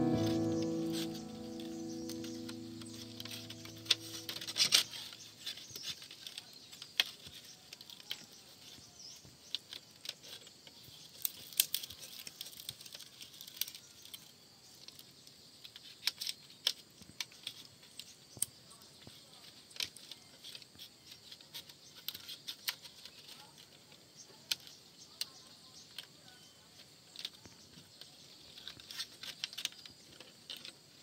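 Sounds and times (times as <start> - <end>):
background music: 0.0 - 5.1.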